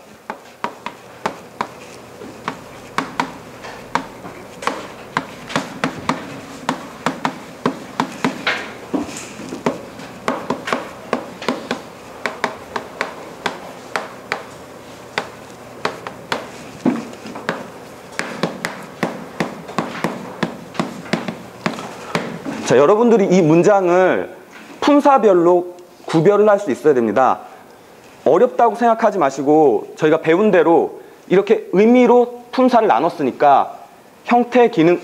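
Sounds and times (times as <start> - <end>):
chalk tapping and scratching: 0.0 - 22.6.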